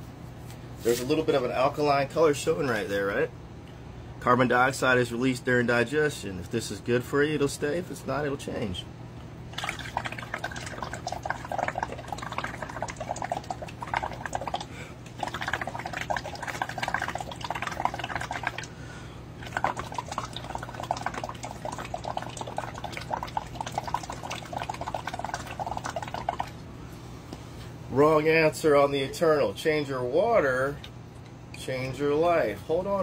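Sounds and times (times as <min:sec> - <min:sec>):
bubbles blown through straw in water: 0:09.6 - 0:18.7, 0:19.4 - 0:26.6.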